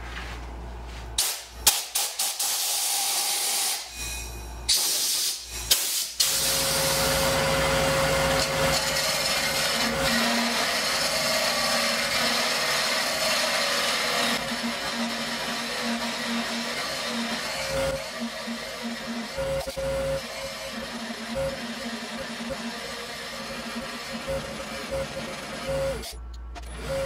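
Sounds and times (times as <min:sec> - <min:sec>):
compressed air blasts: 0:01.2 - 0:03.9, 0:04.7 - 0:06.7
hollowing tool cutting wood: 0:06.3 - 0:27.0
wood lathe running: 0:06.5 - 0:26.0.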